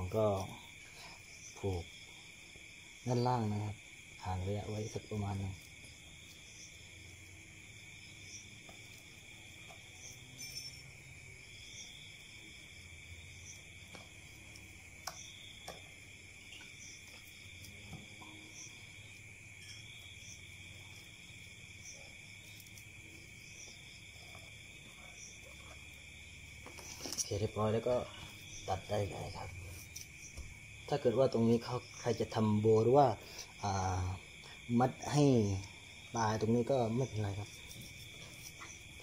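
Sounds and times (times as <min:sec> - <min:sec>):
night insects trilling: 0:00.0 - 0:39.0
hands tying string on plastic: 0:26.6 - 0:30.6.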